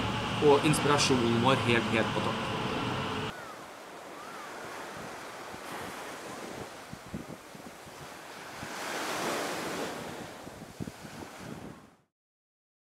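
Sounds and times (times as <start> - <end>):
ocean surf on sandy beach: 0.0 - 12.1
wind buffeting microphone: 4.1 - 12.0.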